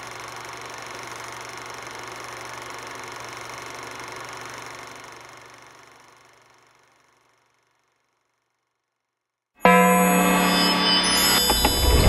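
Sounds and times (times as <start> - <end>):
logo sound: 10.0 - 12.0.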